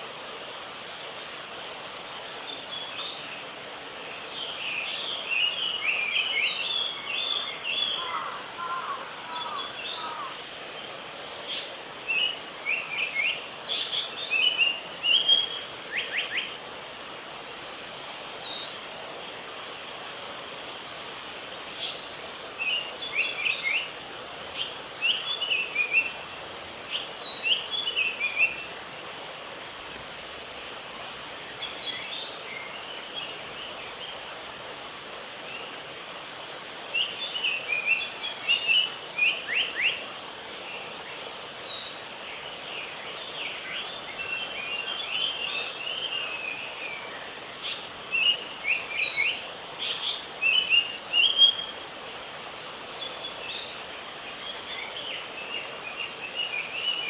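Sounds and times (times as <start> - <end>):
background hiss: 0.0 - 57.0
bird singing: 4.3 - 10.4, 11.5 - 16.6, 36.9 - 40.0, 41.0 - 51.8, 53.0 - 57.0.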